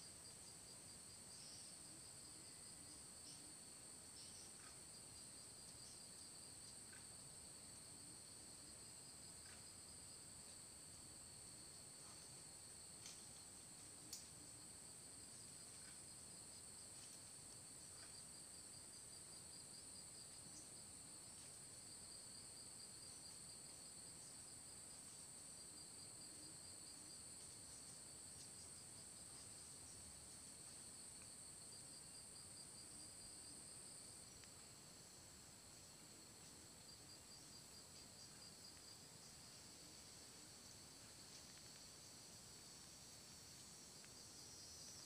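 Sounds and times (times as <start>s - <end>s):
insects trilling: 22.8s - 45.0s.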